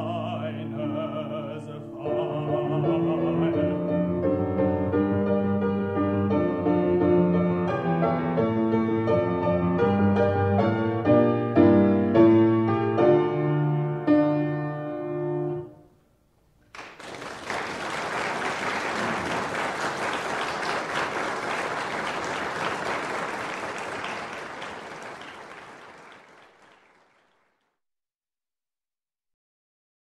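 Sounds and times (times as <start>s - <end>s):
piano chords: 0.0s - 15.8s
audience applause: 16.7s - 27.7s.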